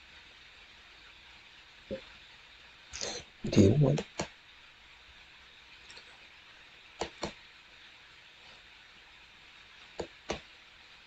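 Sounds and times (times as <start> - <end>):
faint room hiss: 0.0 - 11.0
computer mouse clicking: 7.0 - 7.3.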